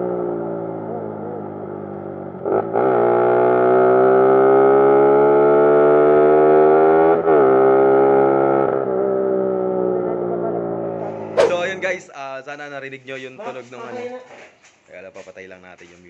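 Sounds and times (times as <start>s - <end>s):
loud motorcycle engine accelerating: 0.0s - 11.9s.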